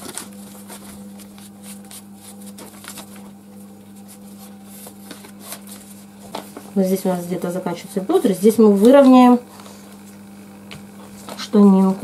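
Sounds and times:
paper rustling and crinkling: 0.0 - 6.7, 10.9 - 12.0
steady low hum: 0.0 - 12.0.

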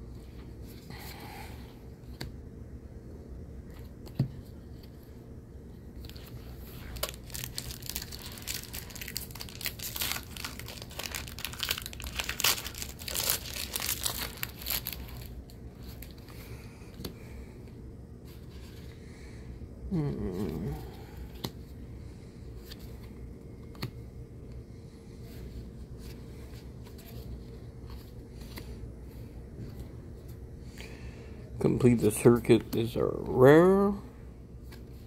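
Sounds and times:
foil wrapper crinkling and tearing: 6.2 - 16.2.

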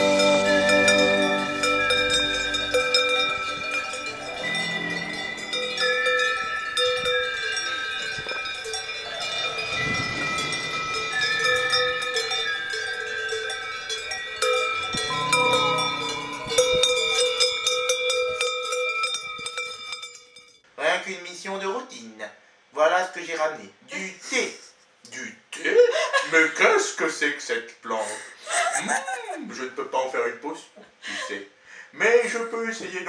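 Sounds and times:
cowbells clanking and ringing: 0.0 - 20.6.

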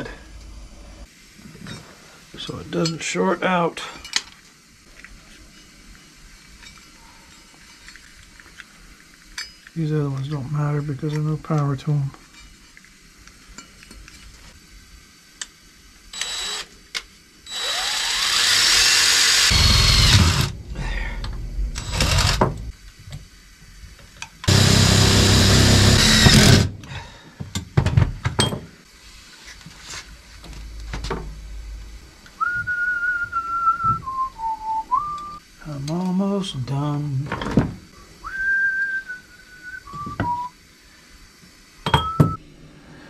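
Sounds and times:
cordless drill into sheet metal: 16.1 - 16.7, 17.5 - 20.6, 21.8 - 22.6, 24.5 - 26.8
person whistling: 32.4 - 35.4, 38.2 - 40.6, 42.0 - 42.4.

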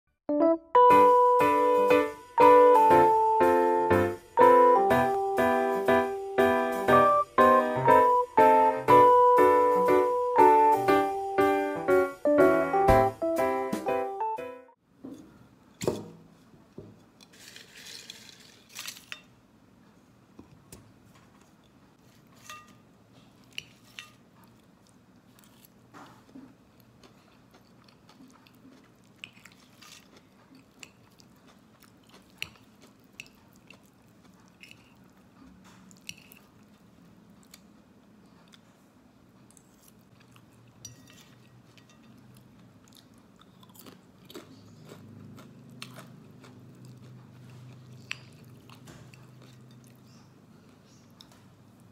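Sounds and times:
person chewing and crunching food: 23.2 - 51.9
fork clinking on ceramic bowl: 40.8 - 42.3.

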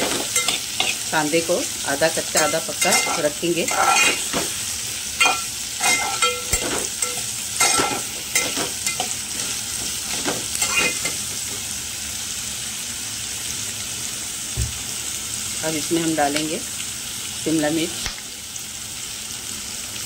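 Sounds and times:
onions sizzling in oil: 0.0 - 20.0
spatula scraping a pot: 2.4 - 4.4, 5.2 - 11.2.

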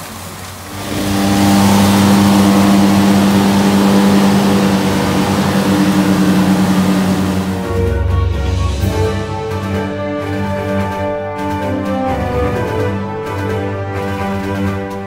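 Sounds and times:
tractor diesel engine running: 0.6 - 8.2.

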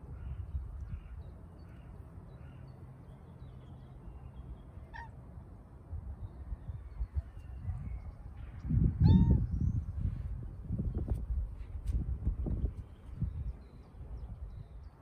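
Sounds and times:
wind rumble on microphone: 0.0 - 1.4, 5.8 - 15.0.

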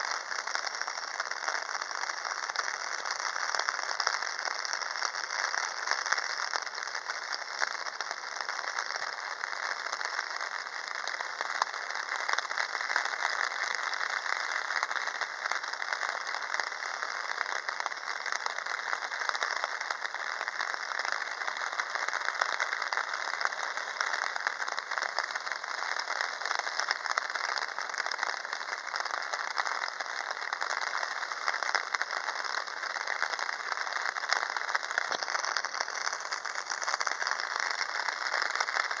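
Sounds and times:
heavy rain patter: 0.0 - 39.0.

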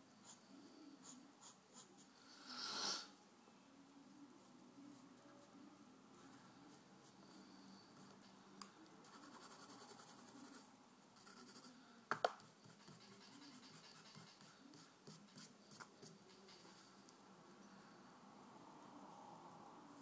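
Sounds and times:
pencil scratching on paper: 9.0 - 10.6, 11.2 - 11.7, 12.4 - 16.8.

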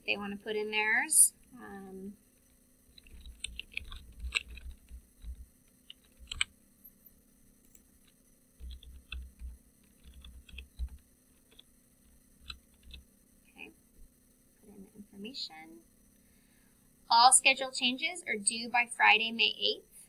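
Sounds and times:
keyboard typing clicks: 3.0 - 6.5, 7.7 - 13.0.

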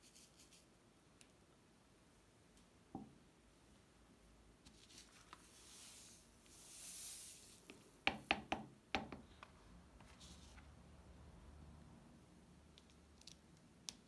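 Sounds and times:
sand hissing as it slides: 5.4 - 7.7.

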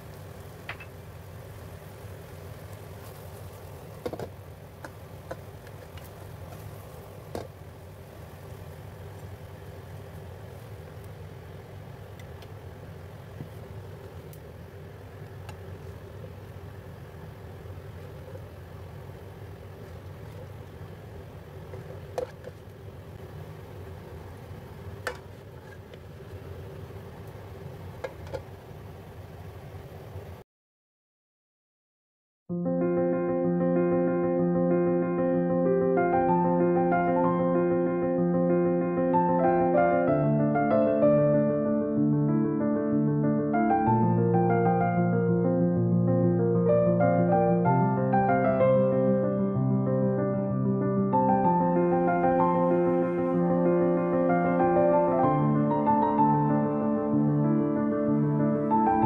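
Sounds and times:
steady low hum: 0.0 - 30.4, 33.4 - 59.0.

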